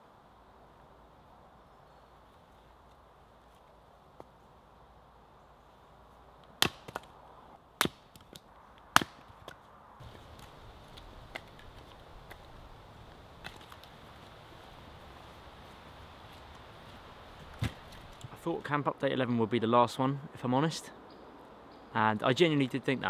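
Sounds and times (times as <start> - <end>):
hatchet chopping wood: 6.6 - 7.1, 7.8 - 9.6.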